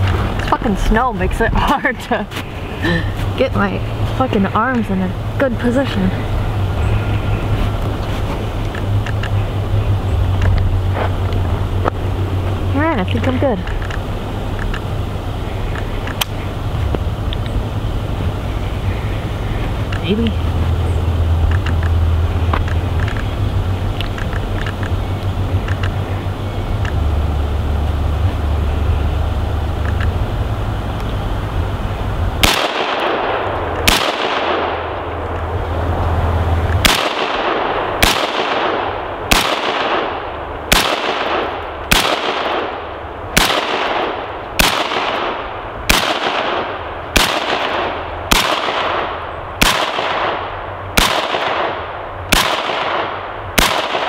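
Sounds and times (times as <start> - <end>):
wind rumble on microphone: 0.0 - 54.0
rifle shots with echo: 32.4 - 35.0, 36.8 - 42.8, 43.4 - 54.0.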